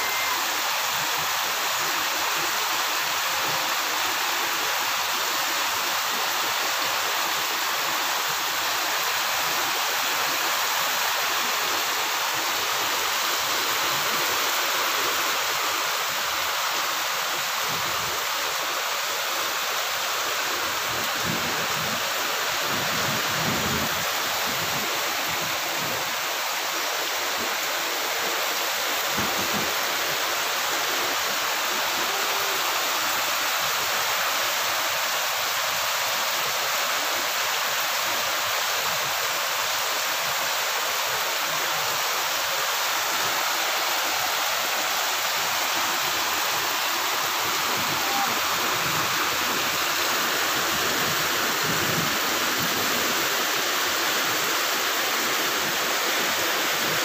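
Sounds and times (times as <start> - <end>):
heavy rain on plants: 0.0 - 57.0.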